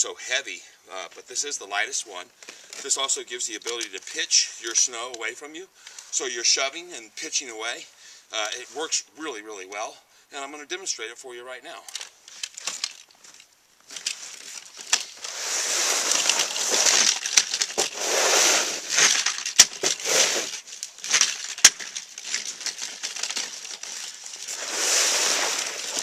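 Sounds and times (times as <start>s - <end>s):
snow swishing: 15.2s - 17.1s, 17.8s - 19.0s, 19.9s - 20.5s, 24.4s - 26.0s
snow plow scraping concrete: 15.2s - 19.2s, 19.8s - 20.7s, 24.4s - 26.0s.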